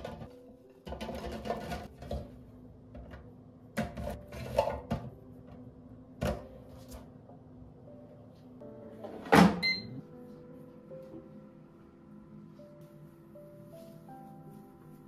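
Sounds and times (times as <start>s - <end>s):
soft background music: 0.0s - 15.0s
short electronic beep: 9.6s - 10.0s.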